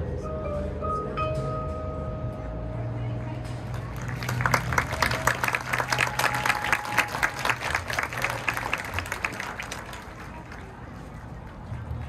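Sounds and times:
crowd applauding: 3.7s - 12.0s.

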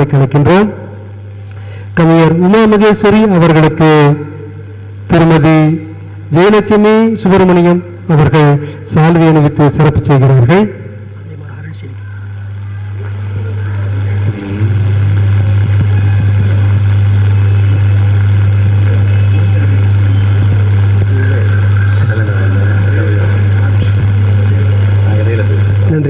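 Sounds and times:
loud steady low hum: 0.0s - 26.0s
faint voices: 10.8s - 26.0s.

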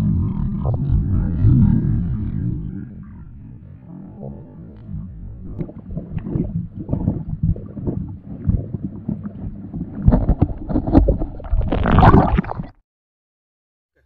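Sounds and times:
water churning underwater: 0.0s - 12.8s
underwater clicks and pops: 4.8s - 12.8s.

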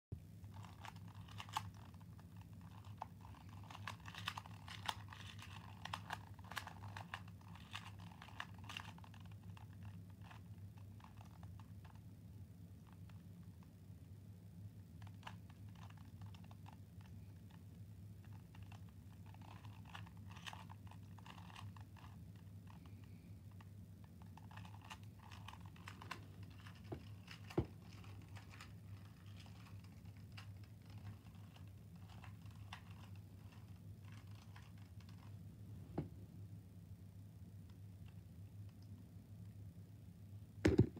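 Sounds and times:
puzzle cube clicking: 0.5s - 12.0s, 18.6s - 22.1s, 24.1s - 35.3s.

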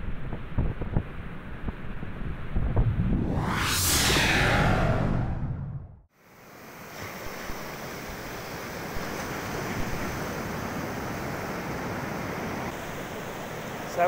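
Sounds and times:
wind on microphone: 2.4s - 6.0s.

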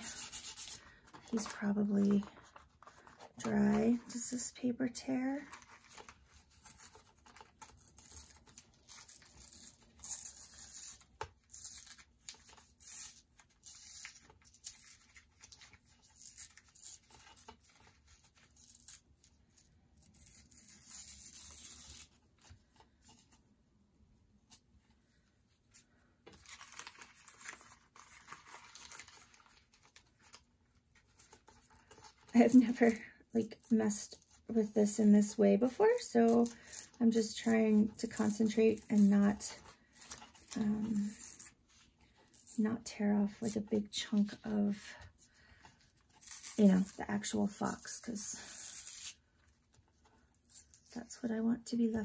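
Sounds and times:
paper tearing: 0.0s - 4.2s, 5.4s - 22.2s, 26.3s - 30.4s, 35.8s - 41.6s, 46.1s - 49.2s.

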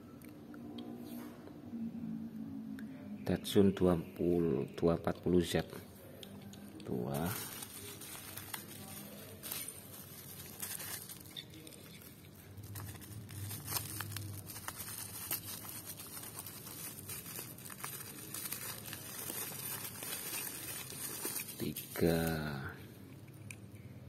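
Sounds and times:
bubble wrap crinkling and tearing: 6.8s - 22.7s.

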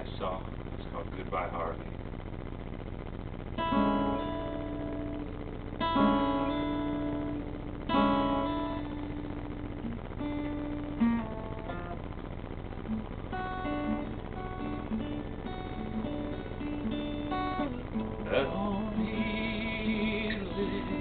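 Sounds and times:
acoustic guitar strumming chords: 3.6s - 5.2s, 5.8s - 12.0s, 12.9s - 21.0s.

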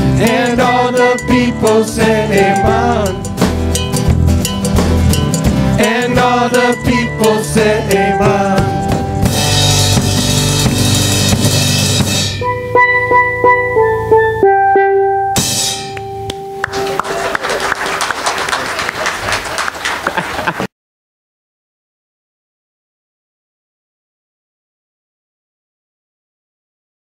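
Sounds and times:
drum and cymbal roll: 0.0s - 13.2s, 15.4s - 16.0s
steel drum notes: 0.0s - 17.0s
cymbal crash ringing: 15.4s - 16.5s.

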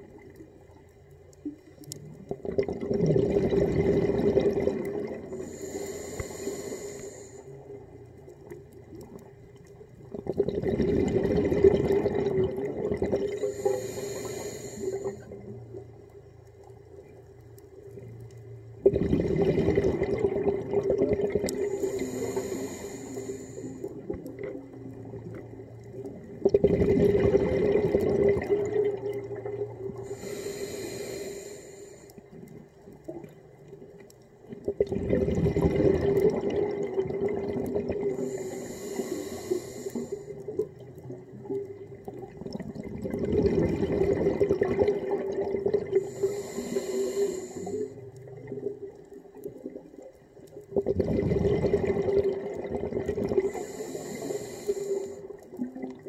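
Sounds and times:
exhaled bubbles rushing: 2.1s - 5.5s, 10.0s - 13.6s, 18.8s - 22.2s, 23.8s - 30.1s, 34.4s - 38.4s, 40.4s - 46.2s, 48.3s - 53.6s
diver breathing through regulator: 5.3s - 7.6s, 13.3s - 15.4s, 21.6s - 24.1s, 30.0s - 32.2s, 38.1s - 40.4s, 46.0s - 48.1s, 53.4s - 55.4s.

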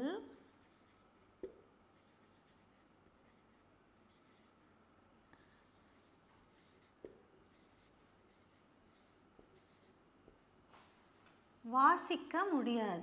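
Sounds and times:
marker writing on whiteboard: 0.0s - 10.4s.

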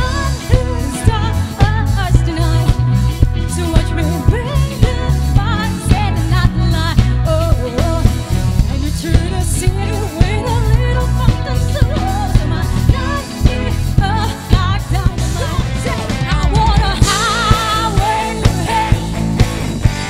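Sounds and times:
woman singing: 0.0s - 19.3s
live pop band playing: 0.0s - 20.0s.

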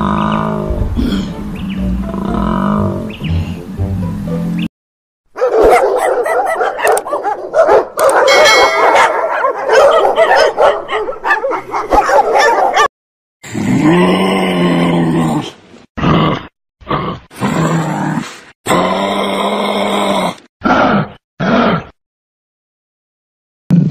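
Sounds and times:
kangaroo grunting calls: 0.0s - 3.7s.

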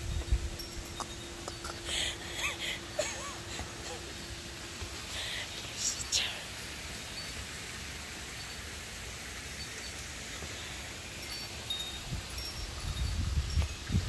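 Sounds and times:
high tinkling notes: 0.0s - 14.0s
outdoor background hiss: 0.0s - 14.0s.

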